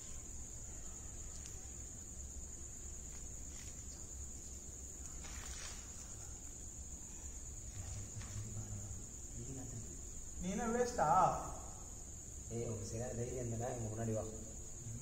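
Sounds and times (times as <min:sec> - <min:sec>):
crickets chirring: 0:00.0 - 0:15.0
low steady hum: 0:00.0 - 0:15.0
brief rustle: 0:05.0 - 0:06.5.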